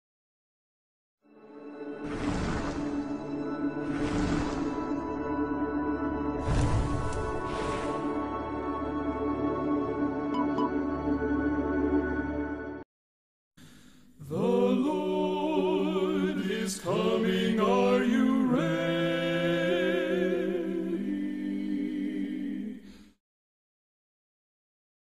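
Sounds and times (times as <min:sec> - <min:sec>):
unaccompanied voices singing: 0:14.2 - 0:23.0.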